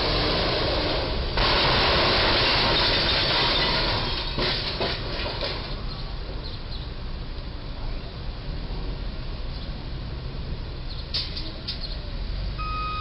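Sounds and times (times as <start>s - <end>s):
metal crunching and scraping: 0.0s - 6.1s.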